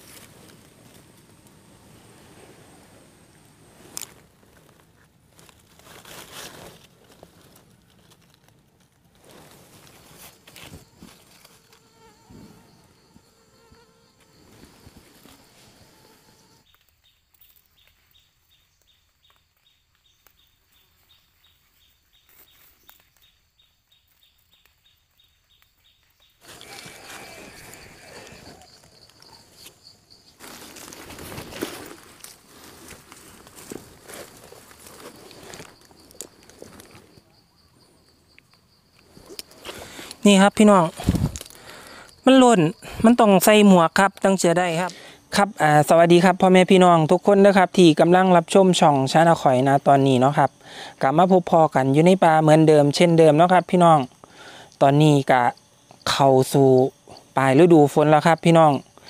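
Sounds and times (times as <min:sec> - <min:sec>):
rapid insect trill: 0:00.0 - 0:59.0
rustles and clicks: 0:03.3 - 0:12.6, 0:26.0 - 0:37.2, 0:40.9 - 0:41.7
faint insect buzzing: 0:09.2 - 0:59.0.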